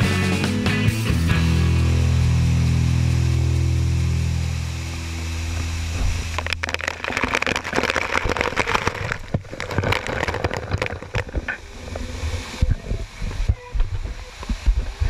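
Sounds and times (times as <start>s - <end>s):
waterfall pounding and splashing: 2.4s - 15.0s
scattered knocks and thumps: 5.6s - 11.6s.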